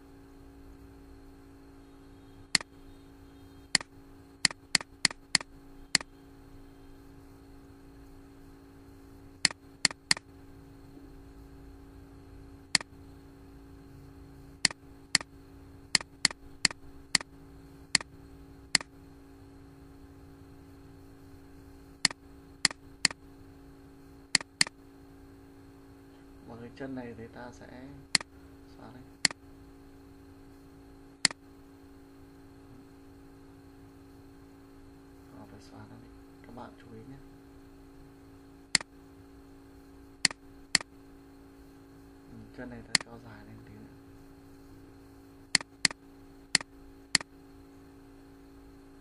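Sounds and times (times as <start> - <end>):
steady low hum: 0.0 - 49.0
mouse button clicks: 24.4 - 24.7.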